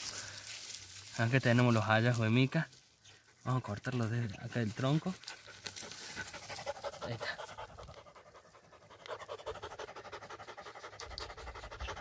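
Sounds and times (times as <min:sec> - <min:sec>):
rhythmic panting: 0:05.2 - 0:12.0.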